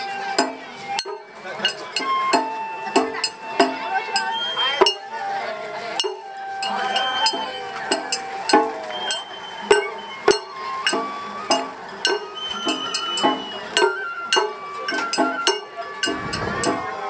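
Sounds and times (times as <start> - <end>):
bamboo flute: 0.0 - 17.0
drum beat: 0.4 - 5.1, 6.0 - 17.0.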